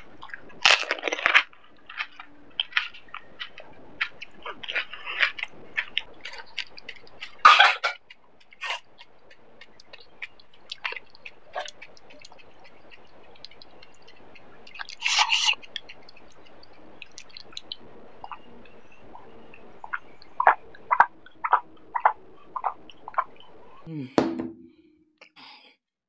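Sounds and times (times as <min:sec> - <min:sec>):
person chewing and swallowing: 0:00.0 - 0:23.9
wet mouth clicks: 0:02.0 - 0:18.5.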